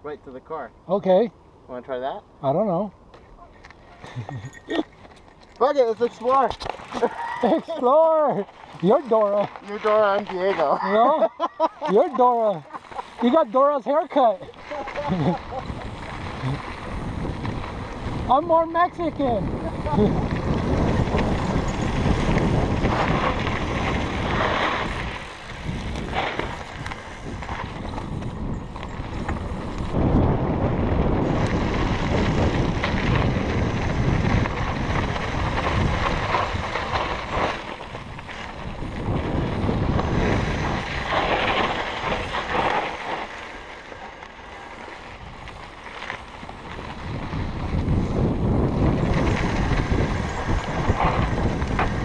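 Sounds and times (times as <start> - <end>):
bike tyre noise: 3.1 - 52.0
bike rattling over rough ground: 3.2 - 52.0
wind buffeting microphone: 14.3 - 43.8, 44.7 - 52.0.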